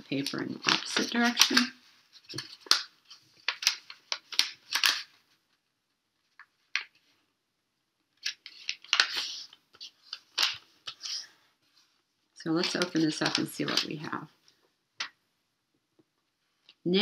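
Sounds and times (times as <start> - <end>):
paper crackling and rustling: 0.0 - 5.7, 8.1 - 14.3.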